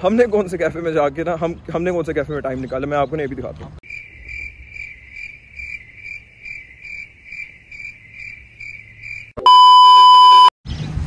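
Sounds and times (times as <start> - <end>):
crickets chirping: 3.8 - 9.4.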